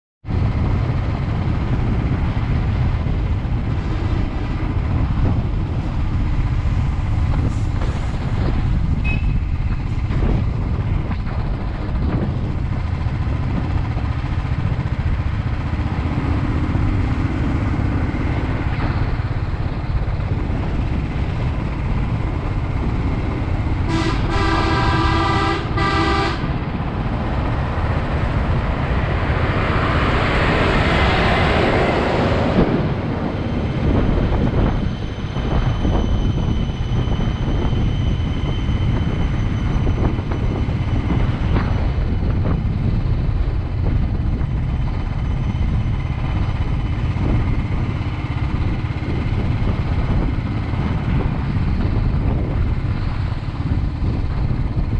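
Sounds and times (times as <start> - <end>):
motorcycle engine and road noise: 0.2 - 54.9
vehicle horn honking: 23.9 - 26.5.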